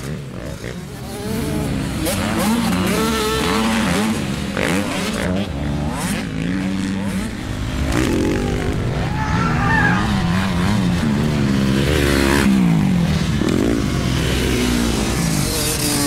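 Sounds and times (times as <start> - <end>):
person imitating engine revving: 7.9 - 11.3.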